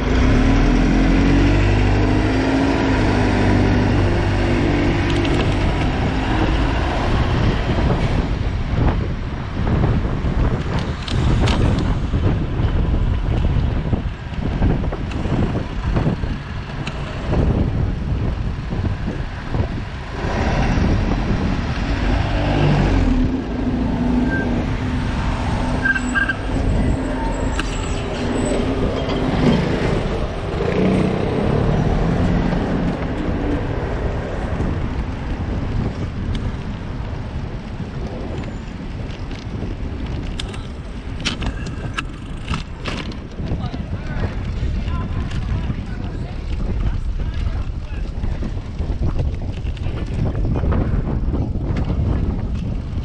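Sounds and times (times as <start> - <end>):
motor vehicle engine: 0.0 - 53.0
wind rumbling on microphone: 0.0 - 53.0.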